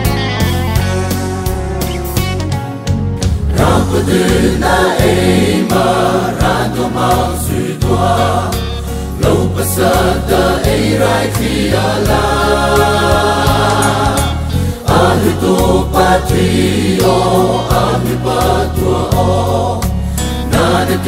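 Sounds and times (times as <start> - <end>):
steady drum beat: 3.2 - 8.5, 9.2 - 19.7
choir singing gospel: 3.4 - 21.0.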